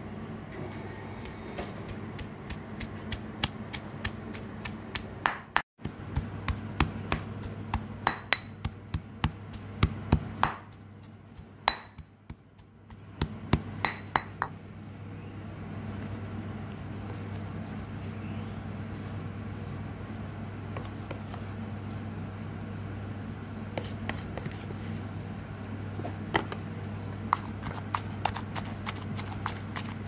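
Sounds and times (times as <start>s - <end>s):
stone pestle knocking in mortar: 2.2s - 10.8s, 11.6s - 14.5s.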